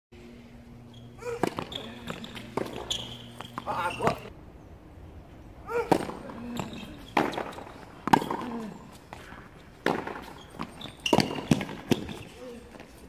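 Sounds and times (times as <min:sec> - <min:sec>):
racket hitting tennis ball: 0:01.2 - 0:04.3, 0:05.7 - 0:12.4
tennis ball bouncing: 0:01.2 - 0:04.3, 0:05.7 - 0:12.3.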